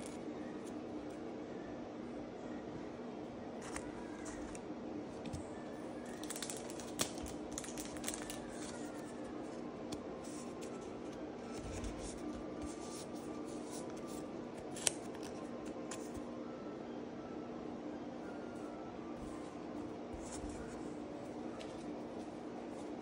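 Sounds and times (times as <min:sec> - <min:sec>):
steady low hum: 0:00.0 - 0:23.0
trading cards rustling: 0:06.0 - 0:16.2, 0:20.2 - 0:23.0.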